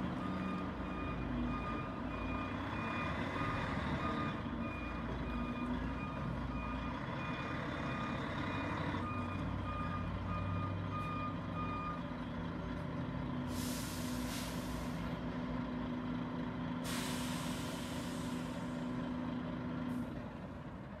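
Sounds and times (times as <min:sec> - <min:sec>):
air brake hiss: 0:13.5 - 0:15.0, 0:16.8 - 0:18.8.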